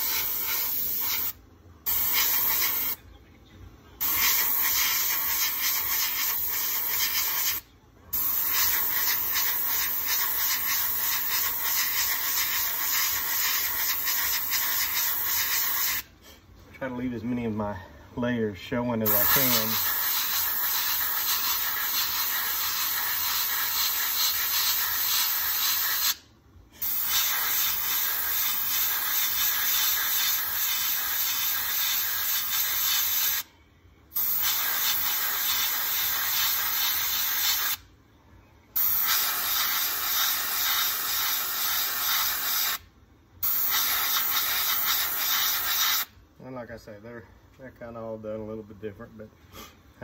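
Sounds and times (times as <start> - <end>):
airbrush spraying hiss: 0.0 - 3.0, 4.0 - 16.1, 19.1 - 26.2, 26.8 - 33.5, 34.1 - 37.8, 38.8 - 42.8, 43.4 - 46.1.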